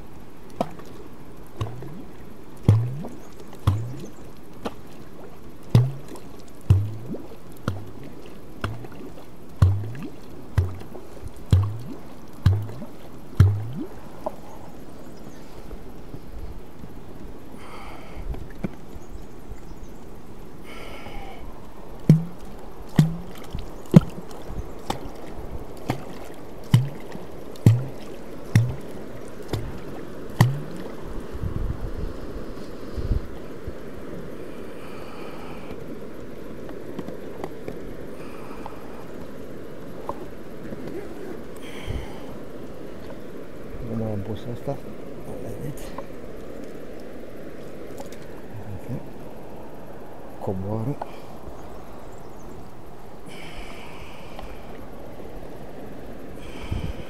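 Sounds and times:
water splashing and gurgling: 0.0s - 57.0s
wooden clonk popping in water: 0.6s - 1.0s, 1.6s - 2.0s, 2.6s - 4.9s, 5.7s - 14.4s, 22.0s - 31.0s.

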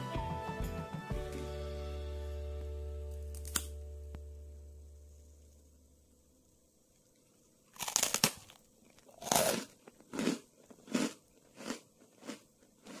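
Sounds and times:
sugar candy snapping: 3.2s - 3.8s
chewing crunches: 7.0s - 13.0s.

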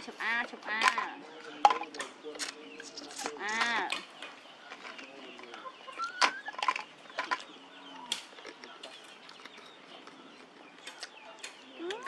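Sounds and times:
monkey chirp: 5.6s - 6.6s.

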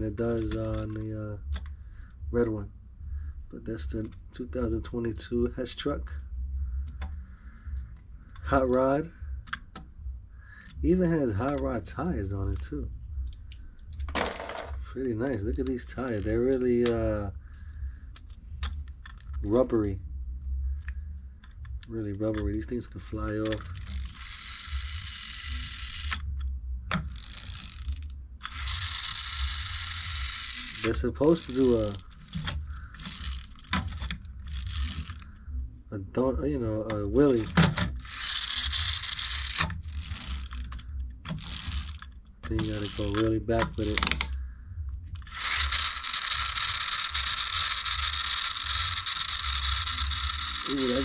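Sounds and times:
toy car pull-back motor ratcheting: 0.0s - 1.7s, 10.6s - 12.8s, 15.2s - 17.3s, 21.5s - 35.3s, 36.6s - 44.4s, 45.2s - 51.0s.

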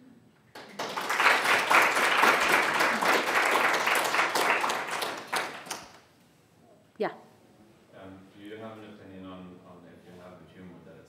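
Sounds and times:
audience applauding: 0.5s - 6.0s.

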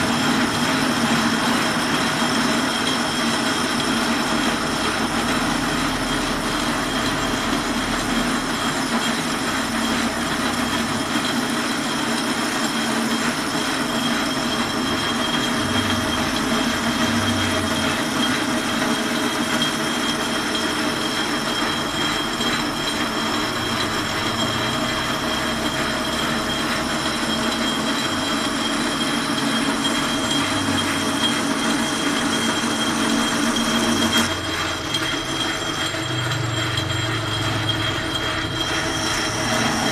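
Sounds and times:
metal lathe cutting steel: 0.0s - 39.9s
high whine: 13.2s - 39.9s.

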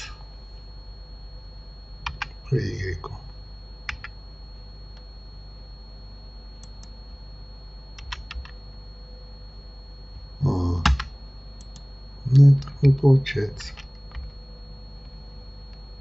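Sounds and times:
faint electrical hum: 0.0s - 16.0s
keyboard and mouse clicks: 2.0s - 2.3s, 8.0s - 8.5s, 10.8s - 13.0s.

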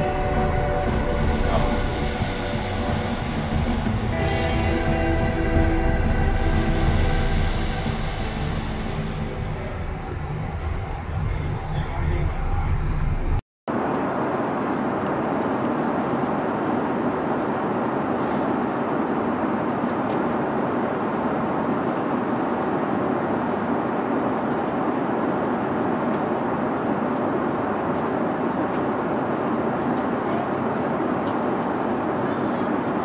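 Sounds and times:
airliner cabin noise: 0.0s - 33.0s.

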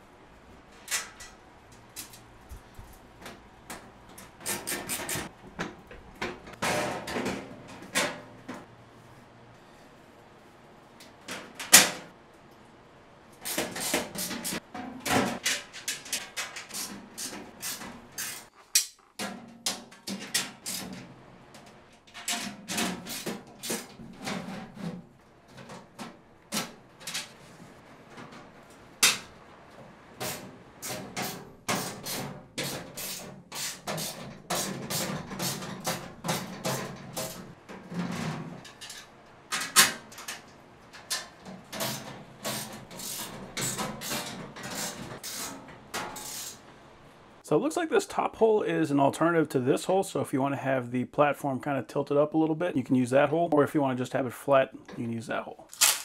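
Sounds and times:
steel panels clanking: 33.9s - 46.6s.

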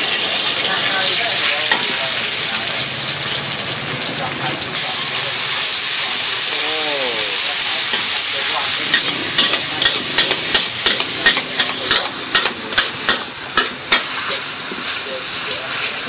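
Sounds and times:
noodles sizzling in a wok: 0.0s - 16.0s
metal ladles clacking against wok: 1.6s - 2.0s, 7.8s - 14.5s.

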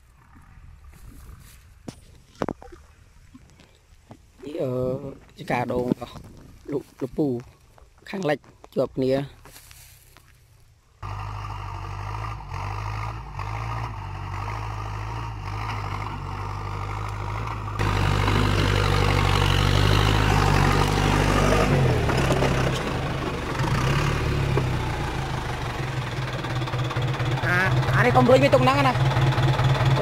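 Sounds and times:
tractor diesel engine running: 9.0s - 30.0s.

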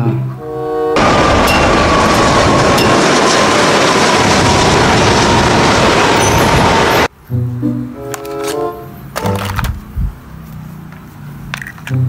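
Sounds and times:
high falling whine: 0.9s - 7.1s
jet engines roaring: 0.9s - 7.1s.

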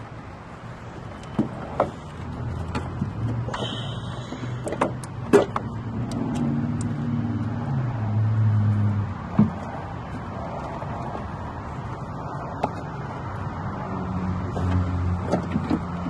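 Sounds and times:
low vehicle engine hum: 0.0s - 16.0s
clicks and knocks of brake booster: 2.6s - 6.9s.

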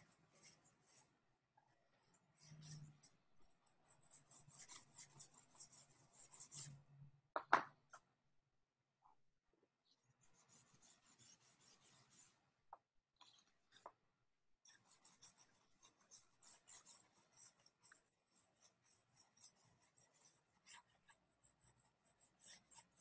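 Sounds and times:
drawing stick scratching paper: 0.0s - 6.8s, 10.2s - 12.4s, 14.6s - 23.0s.

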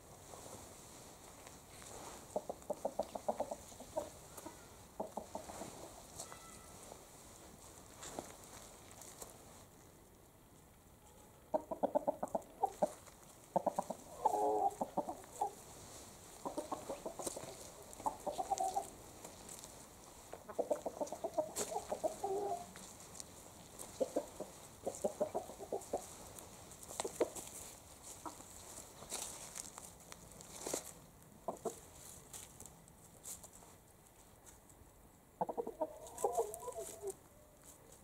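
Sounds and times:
chickens clucking: 2.2s - 6.5s, 11.4s - 29.7s, 31.4s - 31.9s, 35.4s - 37.2s.

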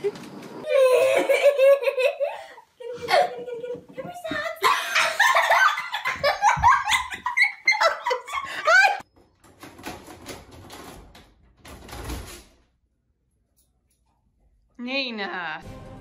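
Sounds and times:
people laughing and exclaiming: 0.7s - 9.0s.

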